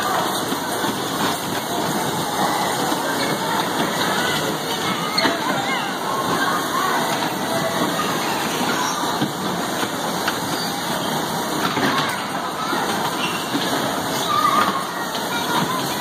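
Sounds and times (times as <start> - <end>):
bumper cars running: 0.0 - 16.0
riders' voices and shouts: 0.0 - 16.0.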